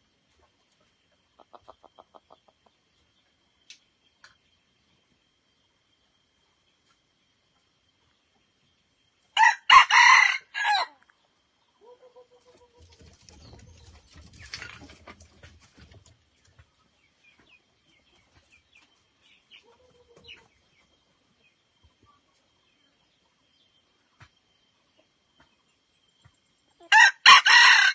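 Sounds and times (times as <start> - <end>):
rooster crowing: 9.4 - 11.0, 26.9 - 27.9.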